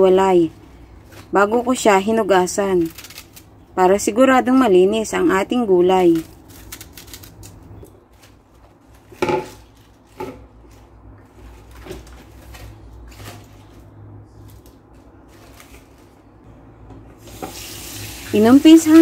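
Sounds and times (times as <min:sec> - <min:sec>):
kitchenware knocking and clattering: 0:09.2 - 0:09.6.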